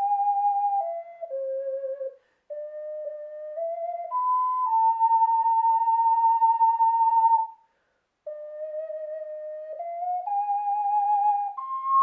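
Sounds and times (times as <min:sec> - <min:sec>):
ocarina playing: 0:00.0 - 0:07.6, 0:08.2 - 0:12.0
breath: 0:02.2 - 0:02.5, 0:07.6 - 0:08.2.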